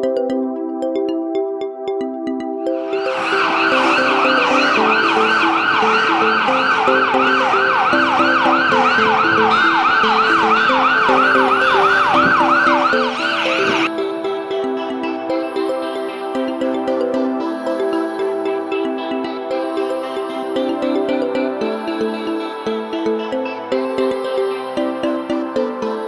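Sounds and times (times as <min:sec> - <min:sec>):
background music: 0:00.0 - 0:26.0
motorcycle siren yelping: 0:02.7 - 0:13.9.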